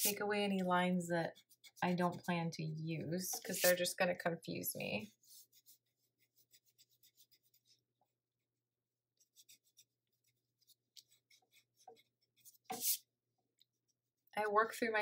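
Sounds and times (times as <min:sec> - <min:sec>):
pencil scratching on paper: 0:00.0 - 0:02.4, 0:03.2 - 0:04.1, 0:04.9 - 0:13.1.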